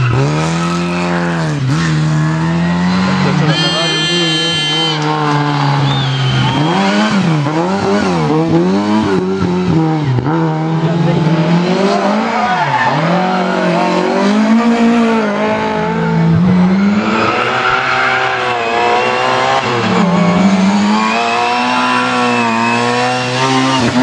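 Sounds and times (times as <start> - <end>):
rally car engine revving: 0.0 - 24.0
tyres squealing: 3.0 - 5.2.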